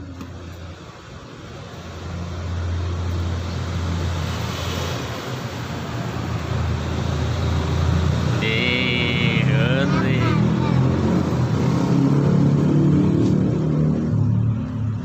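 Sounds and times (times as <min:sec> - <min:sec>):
vehicle engine humming: 0:06.3 - 0:12.4
high-pitched tone: 0:08.4 - 0:10.9
child's voice: 0:08.4 - 0:11.3.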